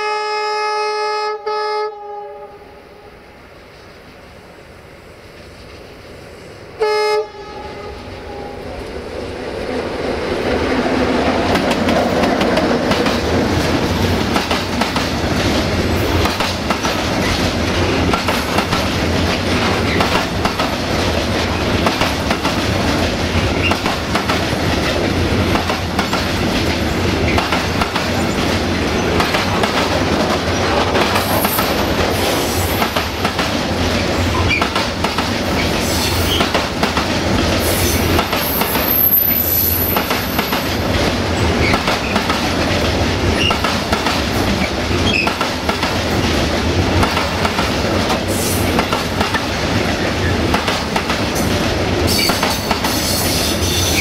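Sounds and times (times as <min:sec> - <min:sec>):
diesel locomotive horn blast: 0:00.0 - 0:03.1, 0:06.8 - 0:08.8
freight train rumbling past: 0:01.2 - 0:54.0.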